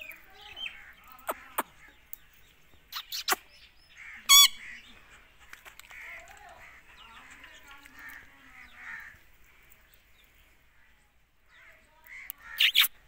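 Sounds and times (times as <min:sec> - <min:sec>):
parakeet chattering: 0:02.9 - 0:03.4, 0:12.4 - 0:13.0
parakeet screech: 0:12.5 - 0:12.9.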